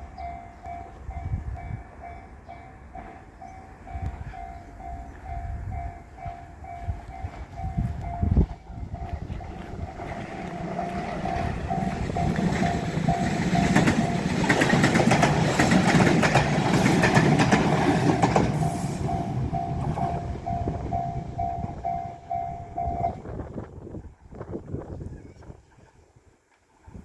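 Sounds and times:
crossing bell dinging: 0.0 - 23.3
train wheels clacking on rails: 1.9 - 23.2.

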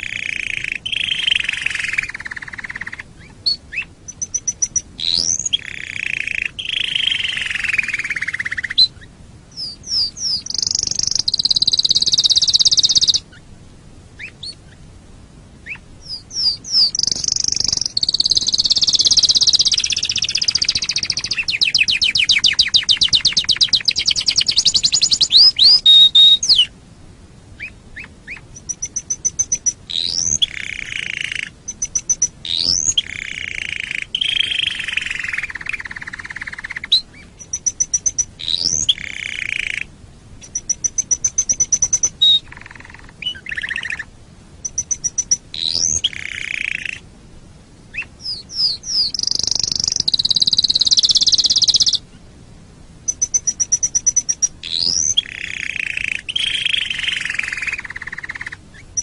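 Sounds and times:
canary singing trills: 0.0 - 13.4, 14.2 - 14.8, 15.6 - 26.7, 27.6 - 47.0, 47.9 - 52.0, 53.0 - 59.0.

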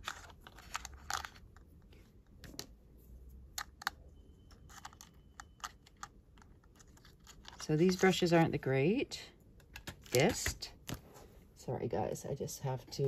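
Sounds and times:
small plastic objects clicking: 4.6 - 7.6.

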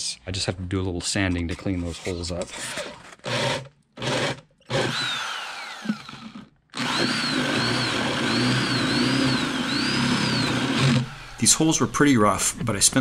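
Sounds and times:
electric drill boring through plywood: 2.6 - 11.7.

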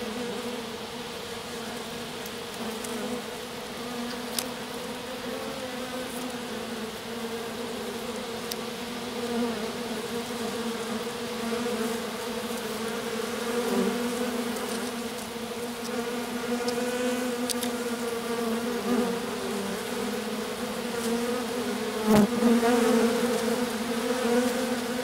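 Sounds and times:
honeybees buzzing: 0.0 - 25.0.

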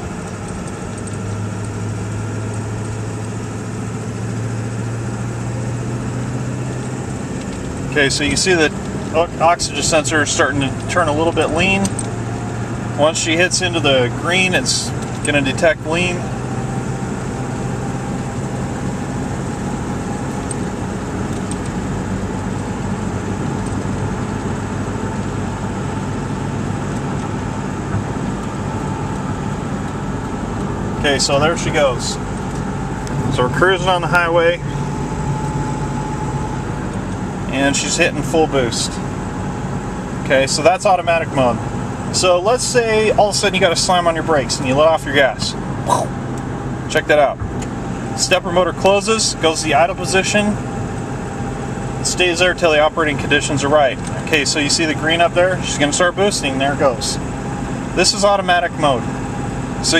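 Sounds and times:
diesel engine low drone: 0.0 - 59.9
road noise: 0.0 - 59.9.

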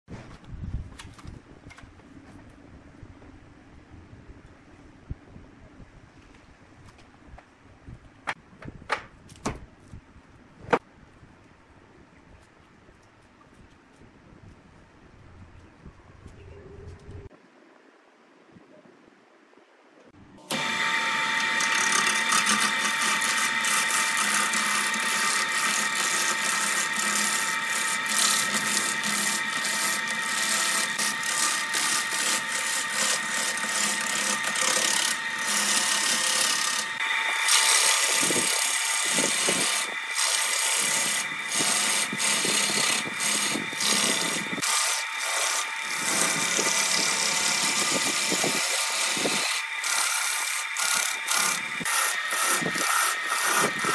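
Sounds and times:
lathe motor whine: 20.4 - 53.9
gouge scraping spinning wood: 20.5 - 53.9.

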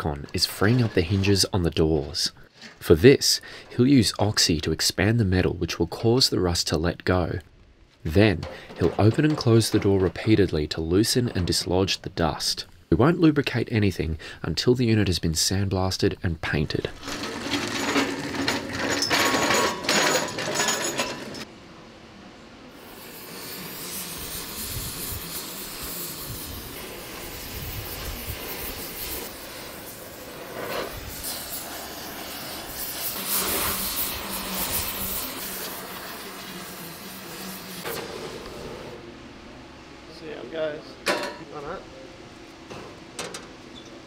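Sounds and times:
torch flame hissing: 22.7 - 39.0.

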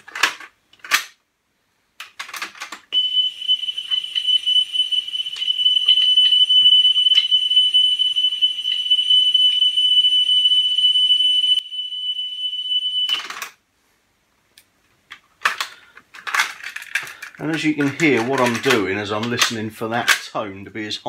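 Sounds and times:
high-pitched test tone: 3.0 - 13.1.

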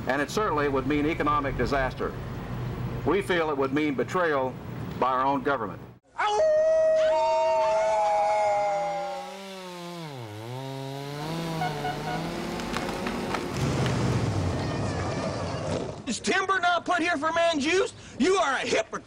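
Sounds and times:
man hollering: 6.1 - 9.4
chainsaw running: 8.5 - 14.1.

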